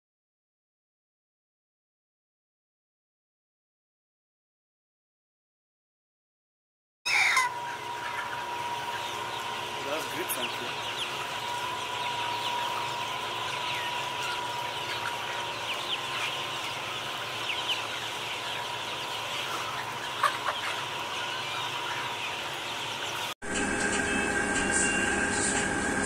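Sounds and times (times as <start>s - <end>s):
chickens clucking and peeping: 7.1s - 26.0s.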